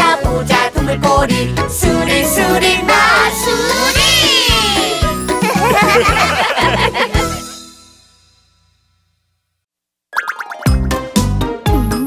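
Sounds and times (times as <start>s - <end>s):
children's song backing music: 0.0s - 7.6s
cartoon voices laughing: 3.7s - 7.5s.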